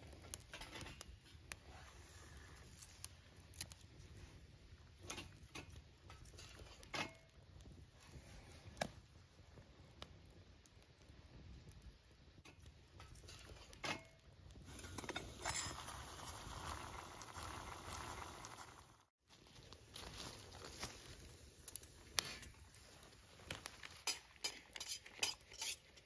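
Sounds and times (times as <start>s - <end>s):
sharp pops of burning wood: 0.0s - 1.8s, 2.6s - 18.8s, 19.6s - 26.0s
sticks crackling in wood stove: 0.0s - 26.0s
rustling: 14.7s - 25.9s.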